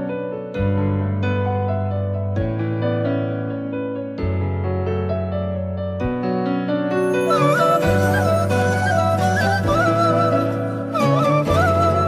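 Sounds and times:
ornamented lead melody: 0:06.7 - 0:12.0.

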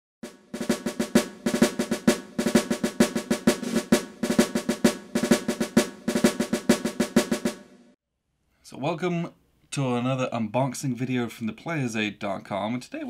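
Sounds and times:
snare drum rolls: 0:00.2 - 0:08.0.

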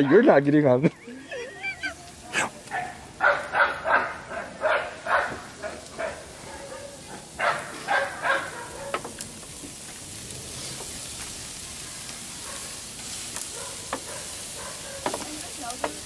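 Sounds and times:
meat sizzling on grill: 0:00.0 - 0:16.0.

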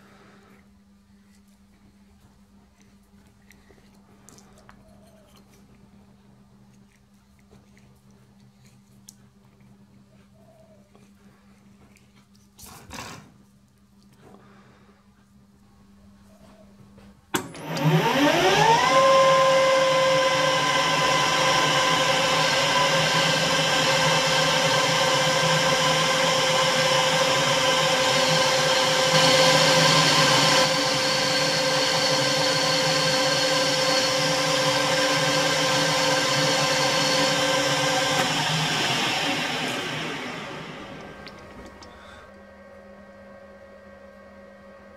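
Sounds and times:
metal lathe motor whine: 0:17.4 - 0:41.4.

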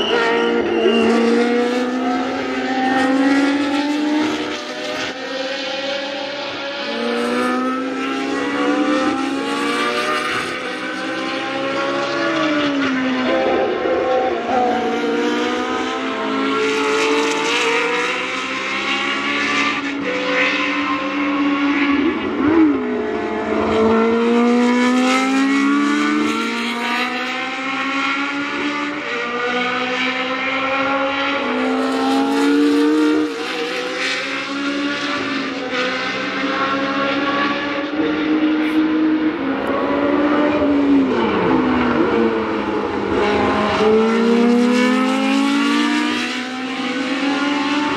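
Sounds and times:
race car engines revving: 0:00.0 - 0:47.9.

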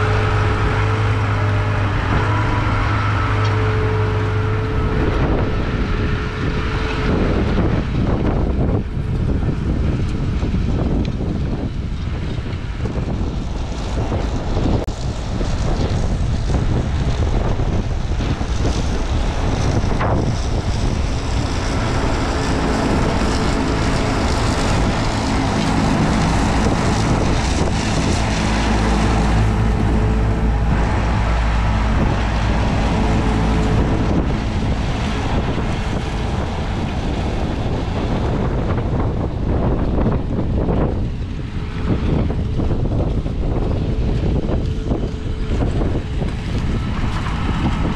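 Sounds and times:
tractor diesel engine drone: 0:00.0 - 0:47.9
wind buffeting microphone: 0:00.0 - 0:47.9.

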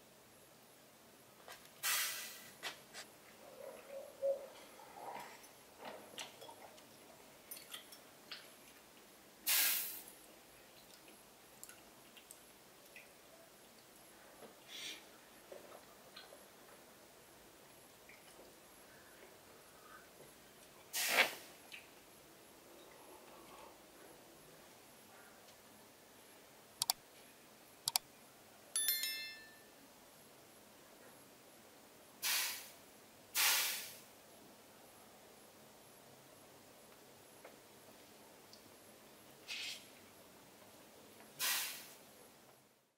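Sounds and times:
hissing slurp of hot tea: 0:09.5 - 0:10.0, 0:20.9 - 0:21.5, 0:33.4 - 0:34.0, 0:41.4 - 0:42.0
bright bell-like chime: 0:28.8 - 0:29.8.

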